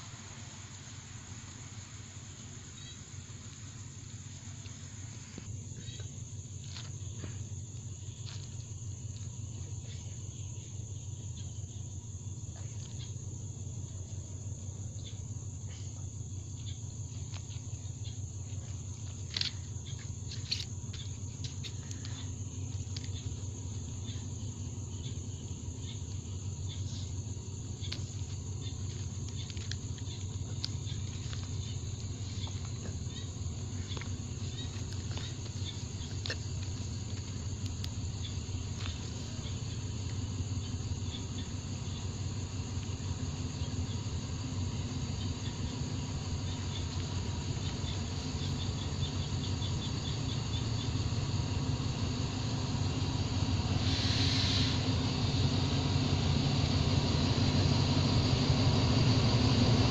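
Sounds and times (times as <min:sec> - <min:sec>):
crickets chirring: 0:00.0 - 0:59.9
distant diesel train rumble: 0:00.0 - 0:59.9.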